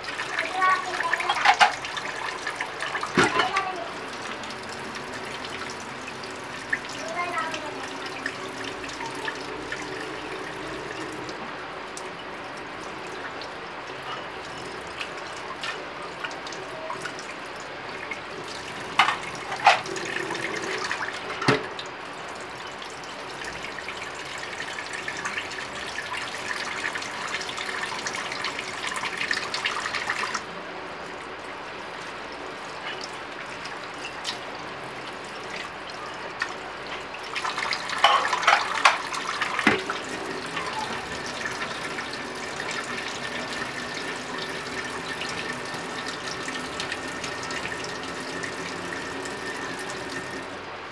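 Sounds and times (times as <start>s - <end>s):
tap water running into sink: 0.0s - 30.5s, 32.6s - 50.6s
dishes knocking and clattering: 1.2s - 1.9s, 3.1s - 3.6s, 18.9s - 20.7s, 21.3s - 21.7s, 38.0s - 40.9s.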